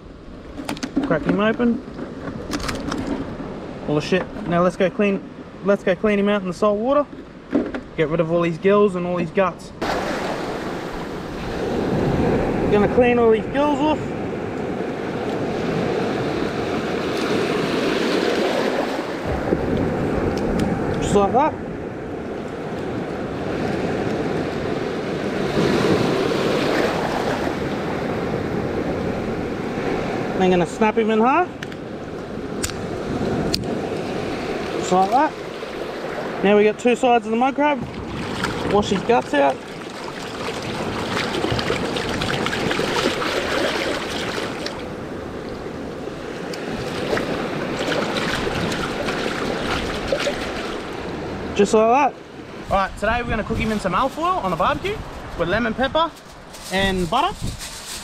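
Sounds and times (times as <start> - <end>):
wind on microphone: 9.6 - 36.8, 37.7 - 51.6, 52.4 - 58.0
water sloshing: 9.8 - 12.6, 37.6 - 51.6.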